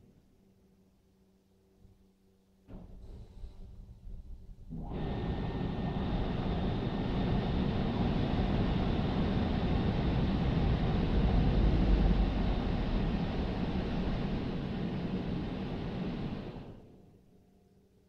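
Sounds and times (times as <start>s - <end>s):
car wash blower dryer rushing air: 4.7s - 16.9s
faint high whine: 4.7s - 18.0s.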